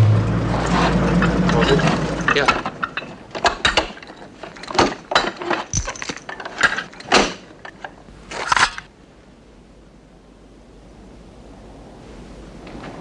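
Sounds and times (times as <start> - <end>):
machine gun metallic clacks: 0.6 - 8.9.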